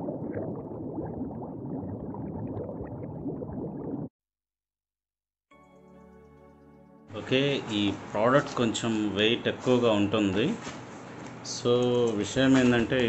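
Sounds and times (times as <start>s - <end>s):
water bubbling and gurgling: 0.0s - 4.1s
music with held tones: 5.5s - 7.9s.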